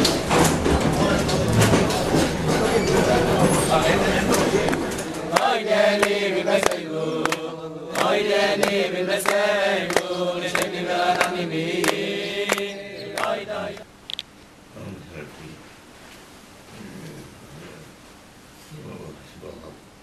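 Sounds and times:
hand claps: 0.0 - 13.8
men singing together: 1.0 - 13.8.

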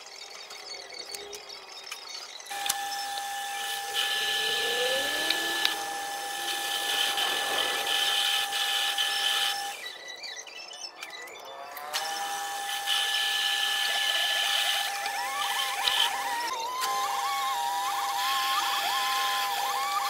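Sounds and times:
metal lathe whining: 2.5 - 10.3, 11.0 - 20.0
hiss of cutting tool: 2.6 - 9.8.

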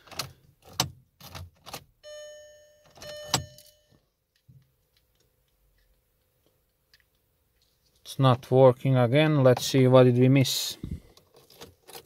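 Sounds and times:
electronic warning chimes: 2.0 - 3.9
ignition key clicking: 3.0 - 3.8.

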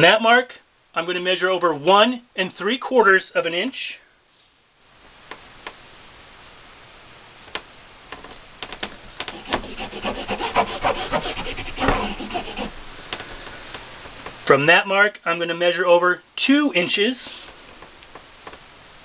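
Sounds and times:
pencil scratching on fabric: 9.3 - 12.7.

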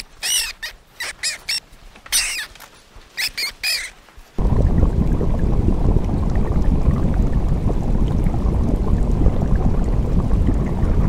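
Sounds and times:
aquarium water rushing and gurgling: 4.4 - 11.0.

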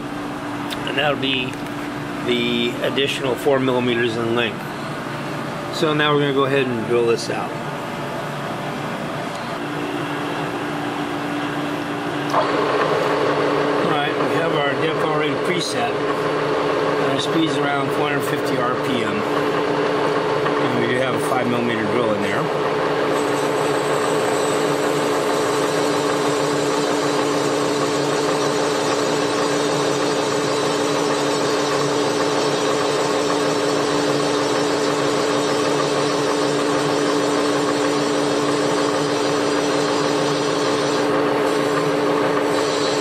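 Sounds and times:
milling machine hum: 0.0 - 43.0.

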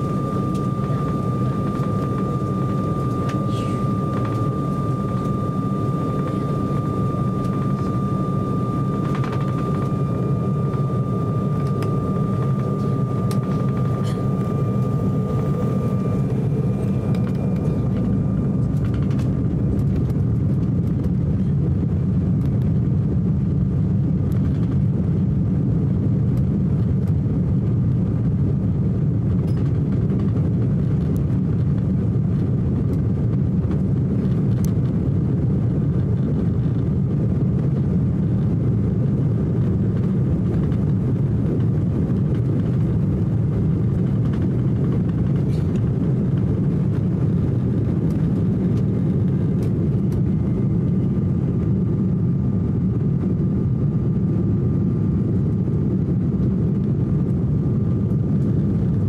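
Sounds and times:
airliner cabin rumble: 0.0 - 59.0.

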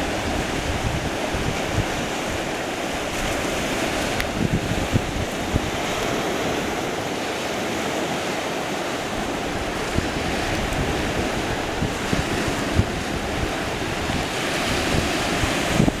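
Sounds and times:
surf rushing: 0.0 - 16.0
wind buffeting microphone: 0.0 - 16.0.

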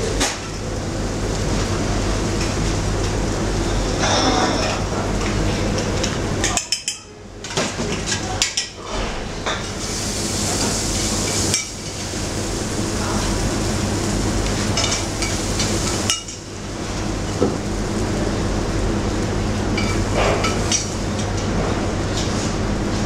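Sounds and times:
low kitchen hum: 0.0 - 23.0
metal spoon clinking on pans: 6.4 - 7.1.

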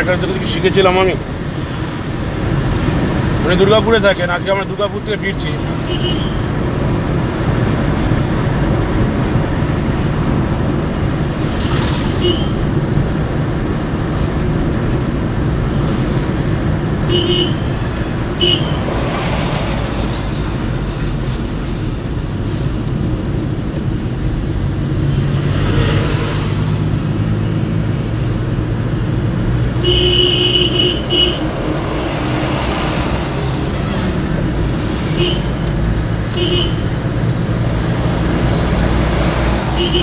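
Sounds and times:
car engine and road noise: 0.0 - 40.0
car horn beeps: 5.8 - 6.5, 12.2 - 12.7, 17.1 - 18.9, 29.8 - 31.5, 35.1 - 35.6, 36.3 - 36.9, 39.7 - 40.0.

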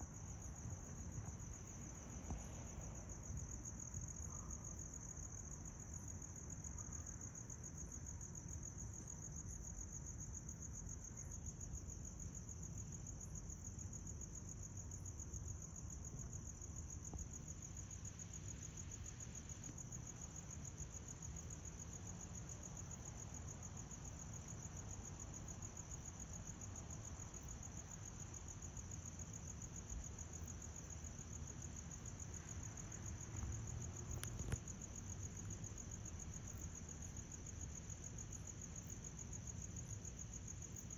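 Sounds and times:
crickets trilling: 0.0 - 40.9.

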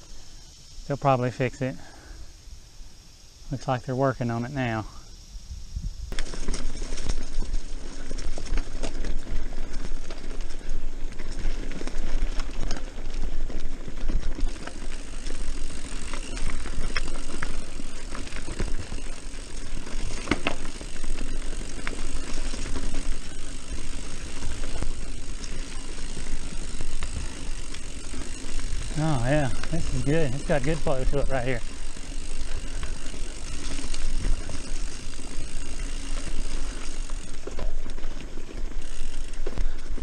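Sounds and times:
tyres on packed dirt: 0.0 - 5.2, 5.9 - 40.0
wind noise on microphone: 5.3 - 6.2
bike chain and frame rattling: 6.1 - 40.0.

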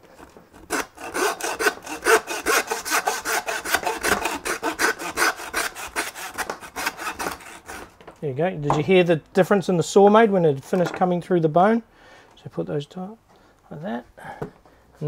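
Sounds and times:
hand saw cutting bone: 0.0 - 7.9.

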